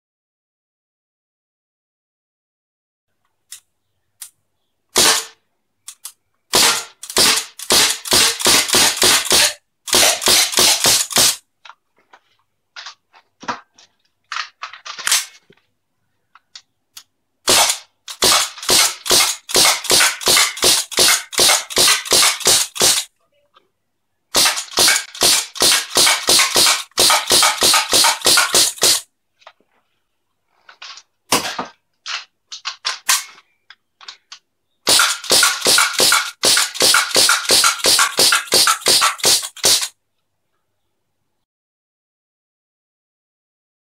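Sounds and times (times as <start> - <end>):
semi-automatic gunfire: 5.0 - 5.4, 6.5 - 11.4, 17.4 - 23.1, 24.3 - 29.0, 34.9 - 39.9.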